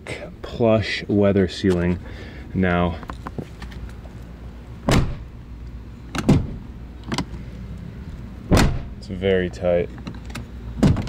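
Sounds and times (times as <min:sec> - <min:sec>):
truck door thud: 0:04.8 - 0:05.3, 0:06.2 - 0:06.7, 0:08.5 - 0:09.0, 0:10.8 - 0:11.0
door latch clunks: 0:04.9 - 0:05.3, 0:06.1 - 0:07.3, 0:08.5 - 0:09.0, 0:10.3 - 0:11.0.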